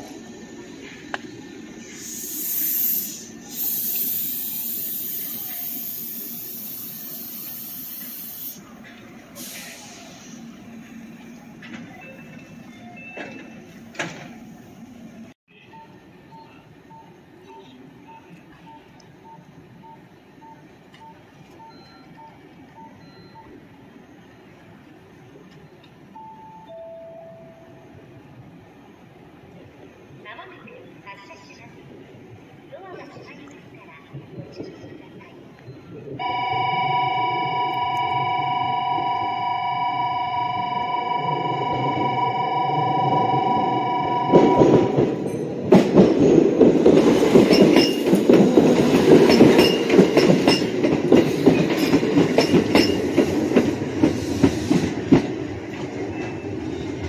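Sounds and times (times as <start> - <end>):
compressed air hissing: 1.8 - 8.6, 9.4 - 10.6
short electronic beeps: 15.5 - 23.6.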